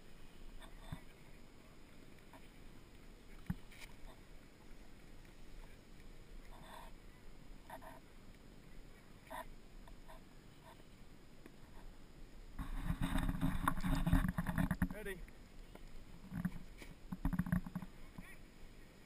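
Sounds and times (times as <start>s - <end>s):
scratchy rubs: 12.6s - 15.0s.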